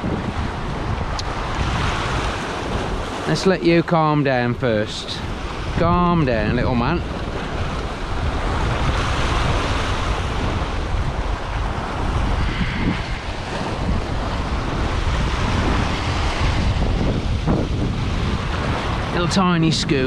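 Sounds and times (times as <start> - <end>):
wind rumbling on microphone: 0.0 - 20.0
sea swell breaking over rocks: 8.0 - 20.0.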